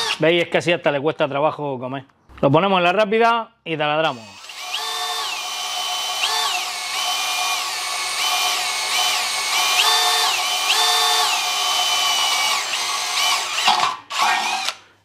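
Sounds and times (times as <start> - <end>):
drill whining through steel tube: 0.0 - 0.2, 4.1 - 14.9.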